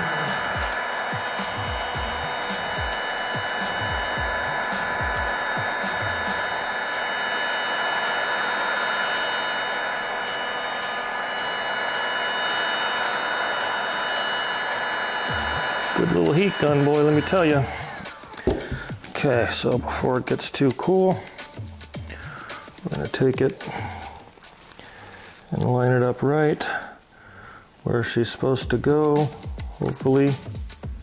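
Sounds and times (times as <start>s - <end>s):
heat gun blowing air: 0.0s - 30.9s.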